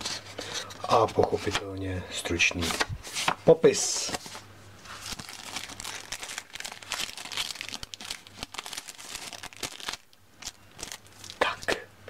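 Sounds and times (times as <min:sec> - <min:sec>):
plastic bag crinkling: 0:04.9 - 0:11.5.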